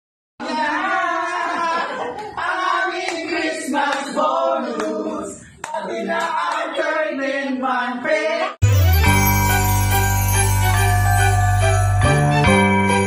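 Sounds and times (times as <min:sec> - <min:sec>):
group singing and shouting: 0:00.4 - 0:08.6
hand clapping: 0:05.6 - 0:06.7
christmas music with jingle bells: 0:08.6 - 0:13.0.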